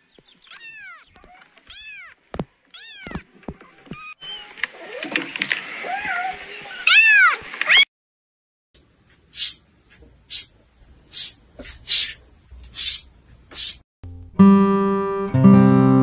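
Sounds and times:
acoustic guitar music: 14.0s - 16.0s.

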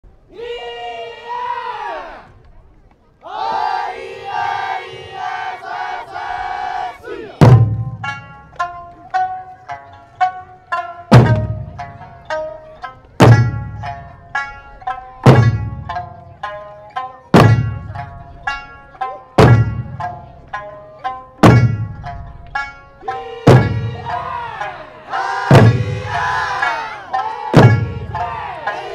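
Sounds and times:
large barrel drums striking: 7.4s - 8.5s, 11.1s - 12.4s, 13.2s - 14.0s, 14.8s - 16.2s, 17.3s - 18.1s, 19.4s - 20.2s, 21.4s - 28.9s.

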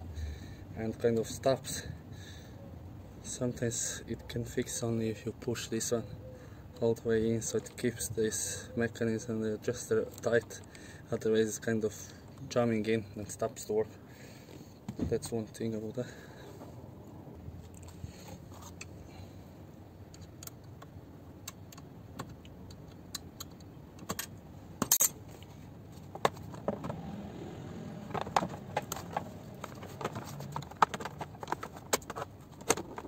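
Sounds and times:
clicks and clinks of seat parts: 20.1s - 27.1s, 27.9s - 33.0s.

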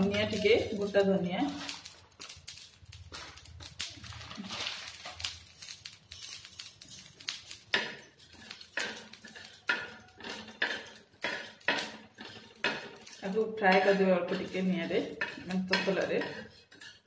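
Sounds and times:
metal spatula scraping iron pan: 9.7s - 17.0s.

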